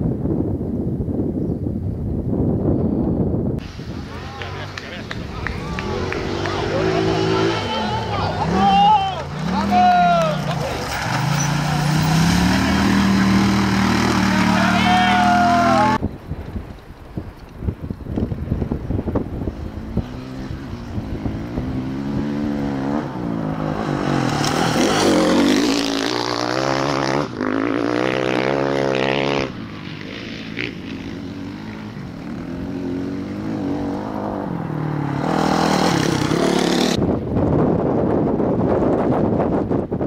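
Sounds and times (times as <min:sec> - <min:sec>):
wind noise on microphone: 0:00.0 - 0:07.6, 0:16.0 - 0:34.6, 0:35.2 - 0:40.0
race car engines passing: 0:03.6 - 0:16.0, 0:19.3 - 0:37.0.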